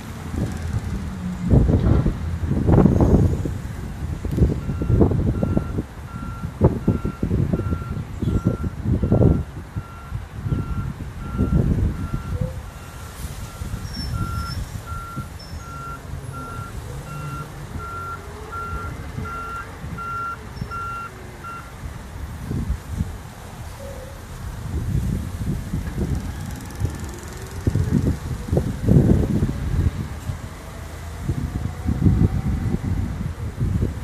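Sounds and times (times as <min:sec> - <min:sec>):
truck reversing alarm beeping: 0:02.9 - 0:21.8.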